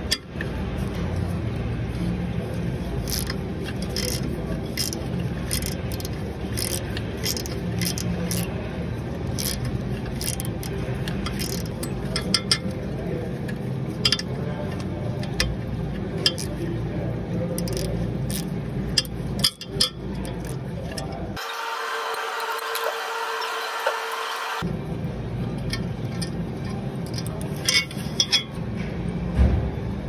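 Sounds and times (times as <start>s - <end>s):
steady low hum: 0.0s - 30.0s
metallic tool clicks and scrapes: 3.0s - 8.6s, 9.3s - 12.8s, 13.5s - 15.6s, 16.2s - 16.6s, 17.5s - 21.4s, 25.6s - 28.6s.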